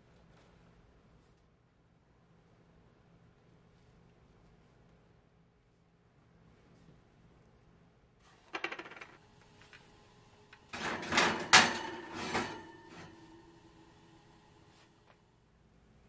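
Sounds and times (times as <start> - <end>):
oven rack ringing: 10.6 - 14.6
dish scraping on oven rack: 10.7 - 13.6.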